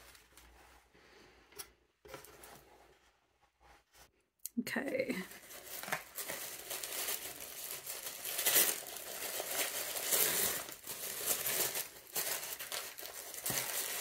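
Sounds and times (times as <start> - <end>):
tissue paper rustling: 5.2 - 14.0.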